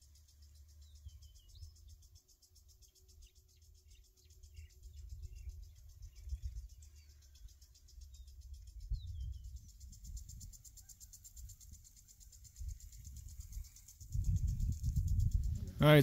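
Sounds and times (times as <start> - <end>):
bird chirps: 0.0 - 16.0
insect trill: 0.0 - 16.0
low rumble of wind: 4.3 - 16.0.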